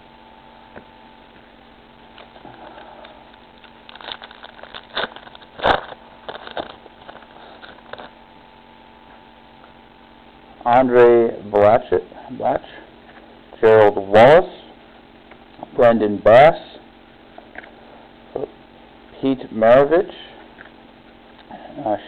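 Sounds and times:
foil wrapper tearing and crinkling: 0:03.9 - 0:08.2.

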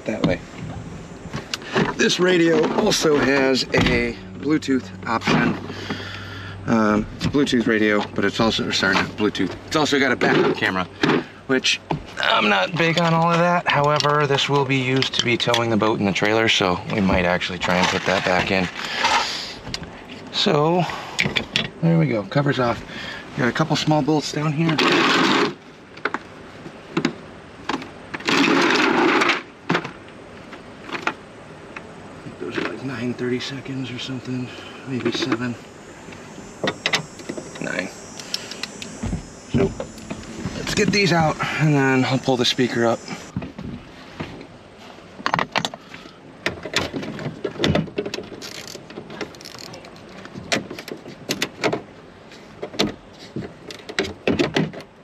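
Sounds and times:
power driver whirring: 0:35.3 - 0:43.3.

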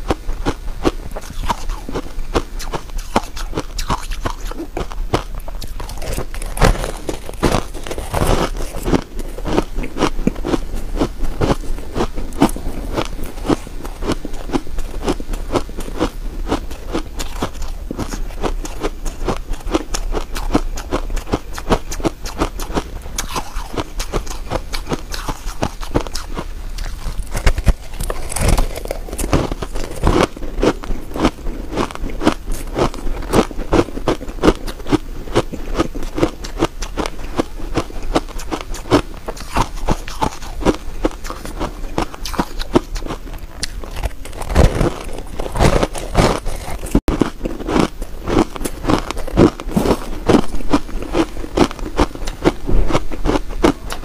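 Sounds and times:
ice crunching being chewed: 0:00.0 - 0:54.0.

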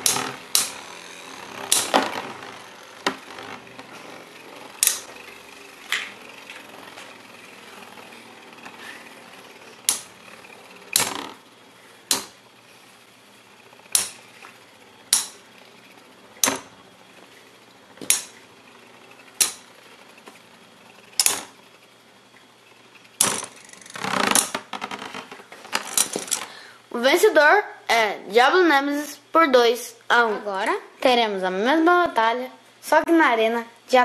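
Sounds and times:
spinning tops clacking together: 0:00.0 - 0:11.4, 0:13.6 - 0:16.8, 0:17.9 - 0:21.6, 0:23.0 - 0:24.7
spinning tops whirring: 0:00.0 - 0:26.6.

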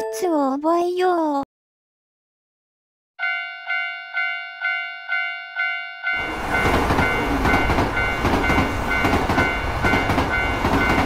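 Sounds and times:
level crossing bell ringing: 0:03.2 - 0:11.0
train rumble and rail clatter: 0:06.2 - 0:11.0.

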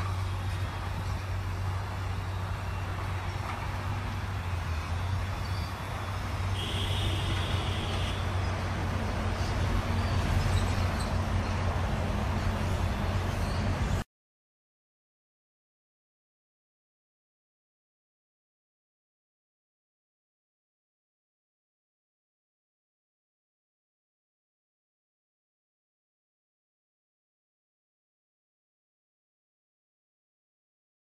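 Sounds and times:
low engine hum: 0:00.0 - 0:14.0
traffic rumble: 0:00.0 - 0:14.0.

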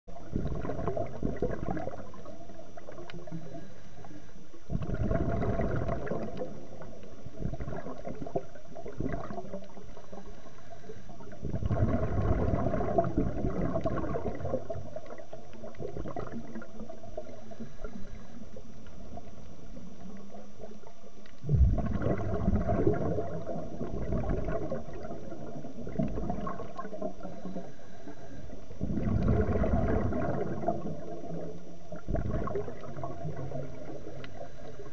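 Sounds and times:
bubbles rushing underwater: 0:00.1 - 0:03.6, 0:04.7 - 0:10.3, 0:11.2 - 0:27.7, 0:28.5 - 0:34.9
steady underwater hiss: 0:00.1 - 0:34.9.

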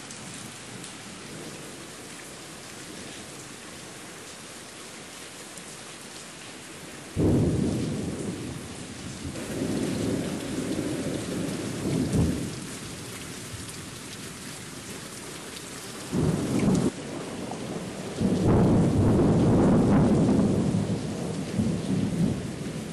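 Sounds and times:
rain hissing: 0:05.6 - 0:22.9
thunder rumbling: 0:07.2 - 0:12.6, 0:16.1 - 0:22.9.

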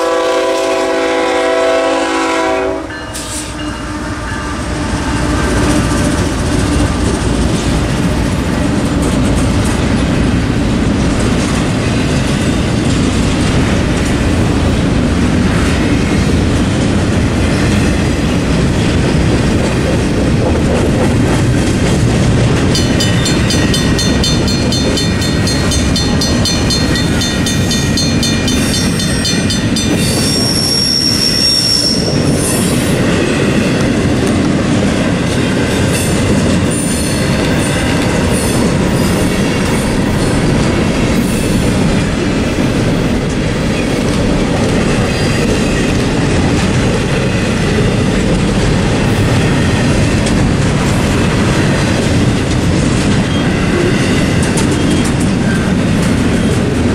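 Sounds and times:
freight train wheels rumbling: 0:00.0 - 0:56.9
high metallic ringing rattle: 0:22.8 - 0:30.2
wheel squeal: 0:28.5 - 0:32.4.

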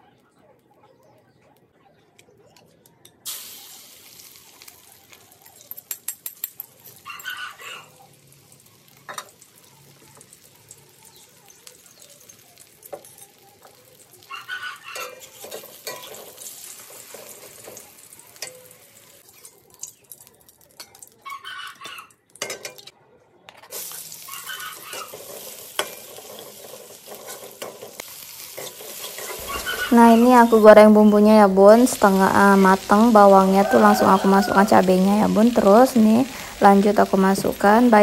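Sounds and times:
omelette frying in a wok: 0:03.2 - 0:21.3, 0:23.7 - 0:38.0
vegetables sizzling in oil: 0:03.2 - 0:21.4, 0:23.7 - 0:38.0
metal spatula scraping a pan: 0:11.9 - 0:19.7, 0:23.5 - 0:37.1.

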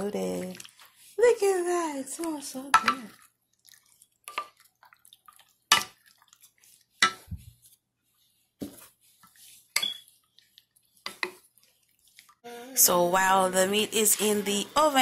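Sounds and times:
wet sauce sounds: 0:00.0 - 0:12.5.

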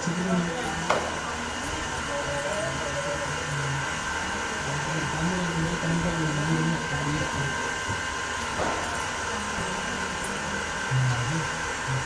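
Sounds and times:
whirring hum with high whine: 0:00.0 - 0:12.0
man chanting: 0:10.9 - 0:12.0.

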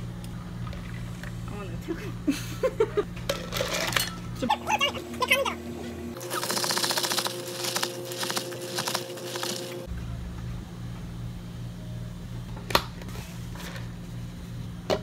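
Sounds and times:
steady low hum: 0:00.0 - 0:15.0
ice rattling in plastic cup: 0:06.2 - 0:09.9.

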